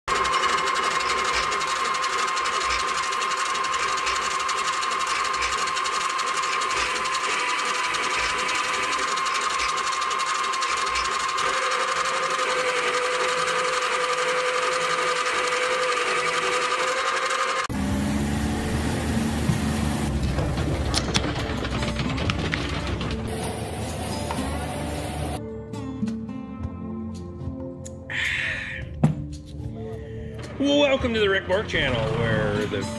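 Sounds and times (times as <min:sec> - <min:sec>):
metal lathe motor whine: 0:00.1 - 0:21.1.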